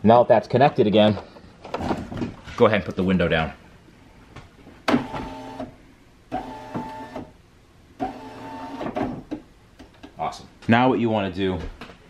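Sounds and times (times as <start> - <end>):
power window motor whining: 6.3 - 7.3, 8.0 - 8.9.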